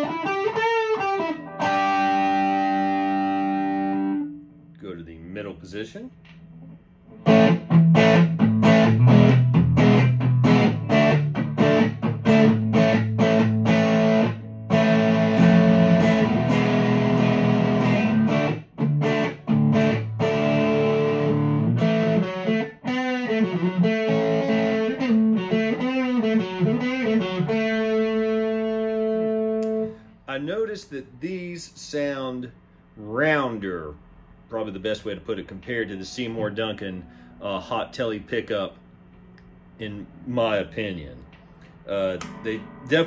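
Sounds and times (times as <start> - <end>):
overdriven electric guitar: 0.0 - 4.6, 6.6 - 30.1, 41.4 - 43.0.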